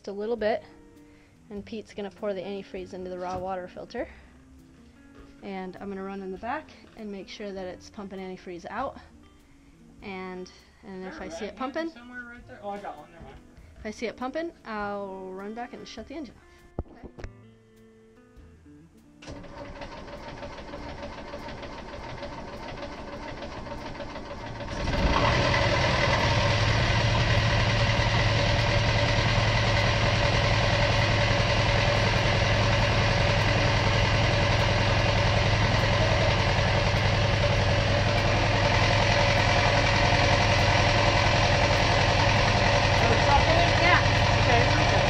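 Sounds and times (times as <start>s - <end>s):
boat engine fast idle: 19.2s - 45.0s
boat engine starter cranking: 19.2s - 45.0s.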